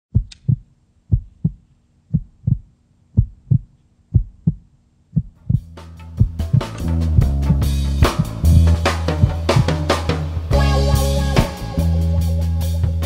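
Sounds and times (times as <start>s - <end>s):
heartbeat-like double thump: 0.1s - 4.6s
drum hits: 5.4s - 11.9s
music: 5.4s - 13.0s.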